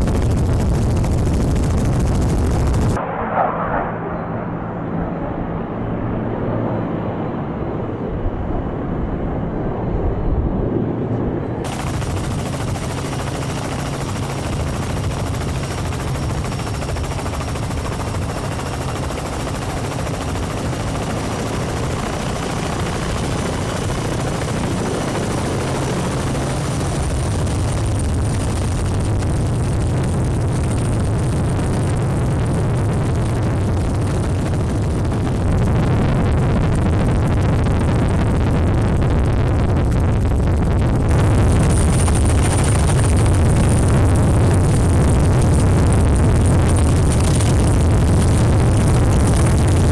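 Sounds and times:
helicopter rotors and turbines: 0:00.0 - 0:49.9.

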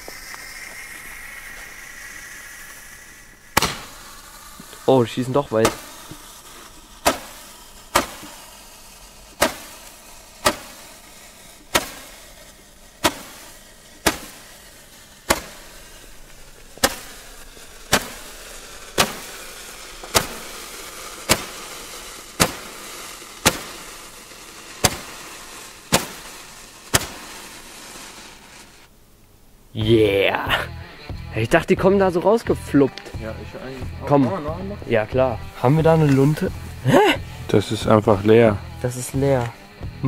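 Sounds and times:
firework hiss: 0:00.0 - 0:29.0, 0:29.7 - 0:40.0
roman candle pops: 0:03.6 - 0:04.0, 0:05.6 - 0:08.4, 0:09.3 - 0:14.6, 0:15.2 - 0:15.7, 0:16.3 - 0:17.2, 0:17.8 - 0:28.7.

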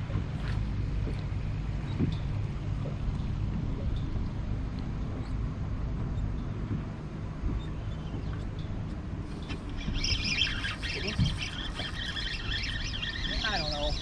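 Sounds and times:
fishing reel chattering: 0:09.4 - 0:14.0.

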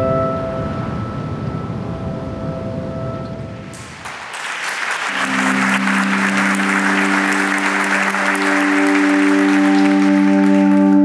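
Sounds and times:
audience applauding: 0:03.7 - 0:11.0
background music with held notes: 0:05.1 - 0:11.0.

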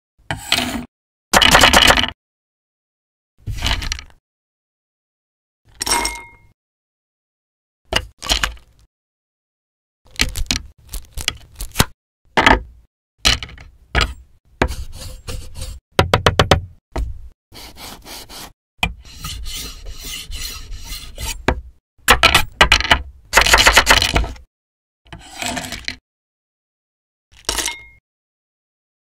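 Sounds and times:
scraping on wooden cutting board: 0:14.0 - 0:15.8, 0:17.6 - 0:21.5
long rasping scrape: 0:14.7 - 0:15.8, 0:17.6 - 0:21.4.

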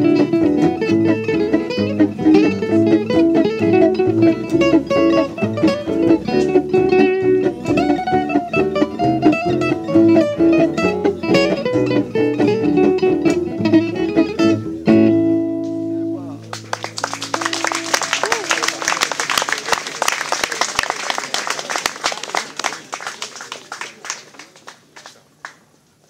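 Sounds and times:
acoustic guitar plucked fast: 0:00.0 - 0:18.8.

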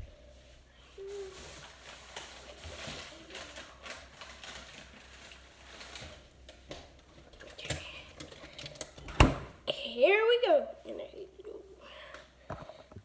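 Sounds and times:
people moving about and handling things: 0:00.0 - 0:09.3.

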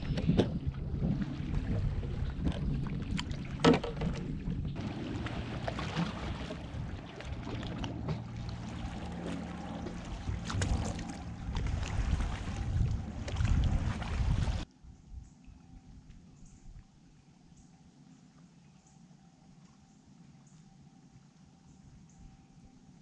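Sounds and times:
water lapping against hull: 0:00.0 - 0:21.4
knocks of gear on boat: 0:03.2 - 0:04.4.

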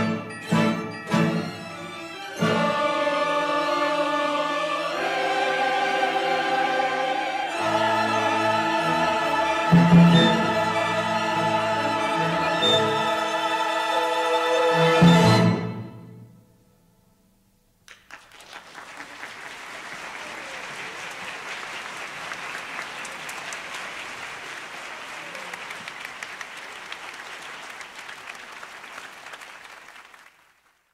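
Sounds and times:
audience applauding: 0:17.9 - 0:30.9.

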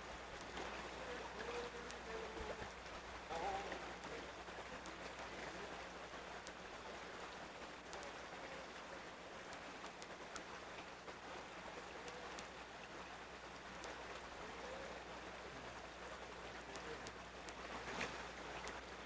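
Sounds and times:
creek water over rocks: 0:00.0 - 0:19.0.

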